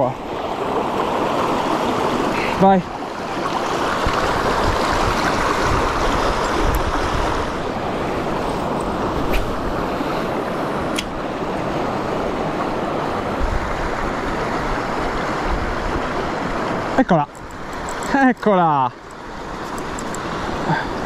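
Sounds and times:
river current rushing: 0.0s - 21.0s
wind buffeting microphone: 3.3s - 16.6s.

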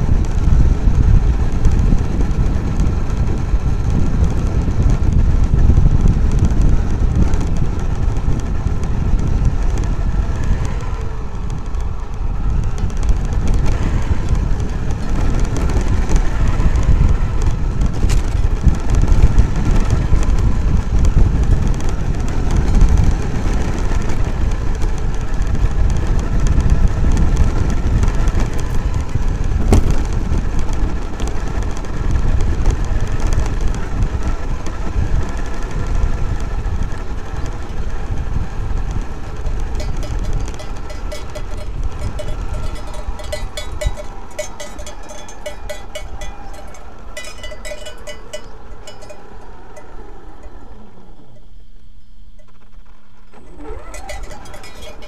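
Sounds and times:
toy truck rumbling over gravel: 52.5s - 55.0s.

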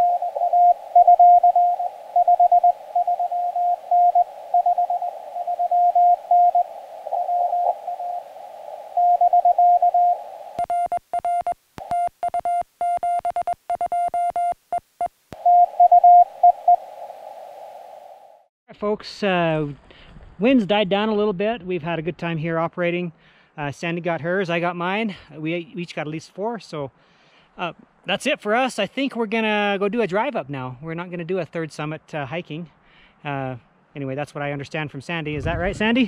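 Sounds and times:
radio receiver hiss: 0.0s - 10.7s, 14.8s - 18.5s
morse code beeping tone: 0.0s - 14.8s, 15.4s - 17.0s.

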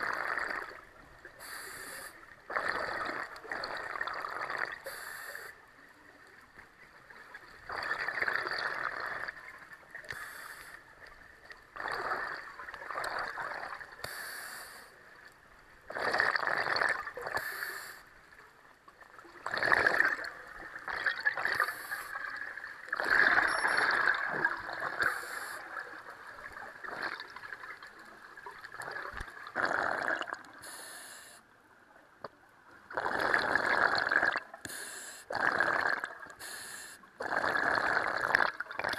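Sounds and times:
hissing regulator inhales: 1.4s - 2.2s, 4.8s - 5.6s, 10.1s - 10.8s, 14.0s - 14.9s, 17.4s - 18.1s, 25.0s - 25.7s, 30.6s - 31.4s, 34.6s - 35.3s, 36.4s - 37.1s
bubbling exhales: 11.8s - 14.8s, 19.4s - 27.6s, 28.6s - 31.3s, 32.9s - 38.9s.

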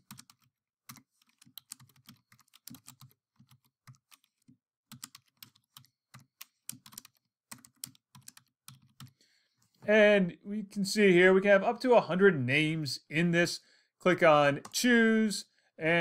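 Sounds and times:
typing on a computer keyboard: 0.0s - 9.2s.

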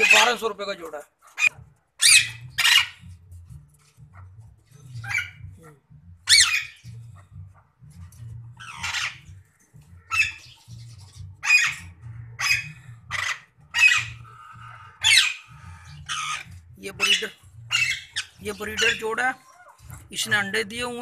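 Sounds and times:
parakeets squawking: 0.0s - 0.6s, 1.2s - 3.1s, 4.9s - 5.5s, 6.2s - 7.2s, 8.6s - 20.4s.

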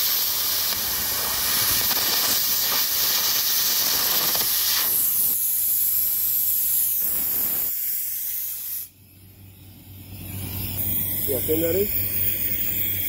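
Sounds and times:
arc gouging hiss: 0.0s - 9.3s.

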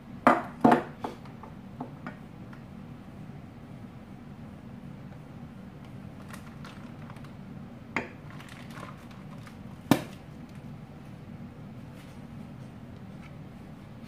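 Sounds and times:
steady low hum: 0.0s - 14.0s
knocks on kitchen counter: 0.3s - 1.2s.

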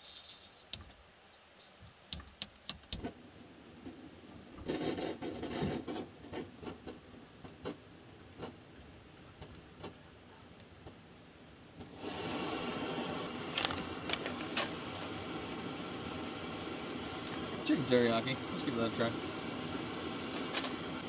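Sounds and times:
gas stove burning with a hiss: 0.0s - 21.0s
sharp clicks: 2.1s - 3.1s.

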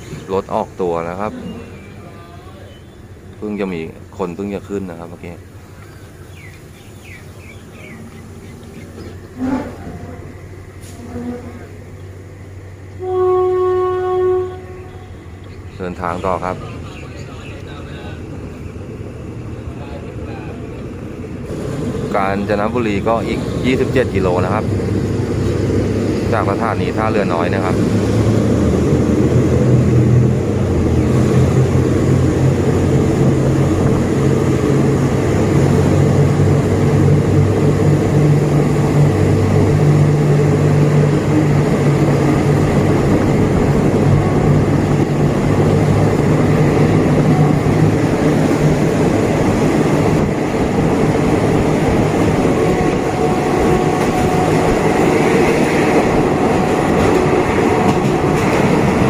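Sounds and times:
locomotive engine hum: 0.0s - 59.0s
train wheels rumbling on rails: 0.0s - 59.0s.

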